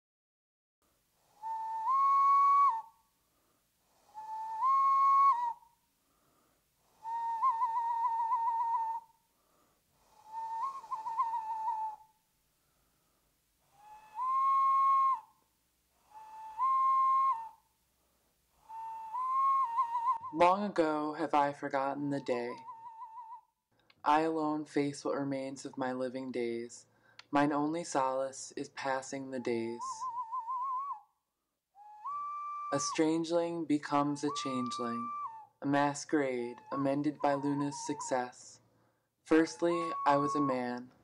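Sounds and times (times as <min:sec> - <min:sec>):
whistle blown with trills: 0:01.4 - 0:02.9, 0:04.0 - 0:05.7, 0:07.0 - 0:09.1, 0:10.1 - 0:12.1, 0:13.8 - 0:15.3, 0:16.1 - 0:17.6, 0:18.6 - 0:20.4, 0:22.5 - 0:23.4, 0:29.7 - 0:31.0, 0:31.8 - 0:33.0, 0:34.2 - 0:35.6, 0:36.2 - 0:38.4, 0:39.4 - 0:41.0.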